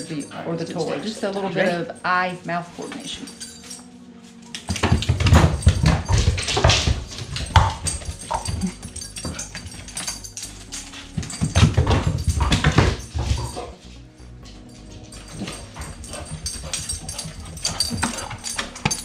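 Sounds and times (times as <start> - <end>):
dog paws thudding on wooden stairs: 4.6 - 13.9, 14.5 - 19.0.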